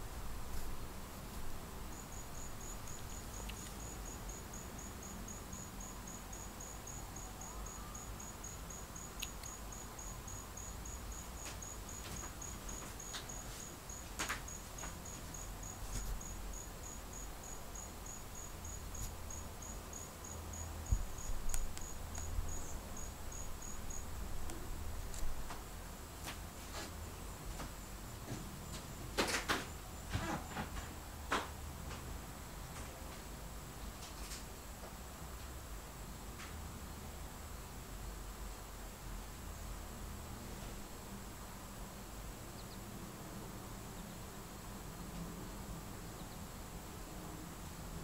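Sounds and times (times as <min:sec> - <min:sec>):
cricket-like insect chirping: 0:00.6 - 0:25.6, 0:40.8 - 0:43.0, 0:46.0 - 0:47.8.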